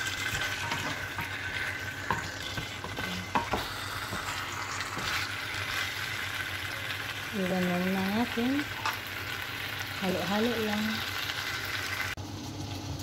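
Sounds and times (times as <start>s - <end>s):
food sizzling in frying pan: 0.0s - 13.0s
spatula knocking against pan: 2.0s - 4.3s.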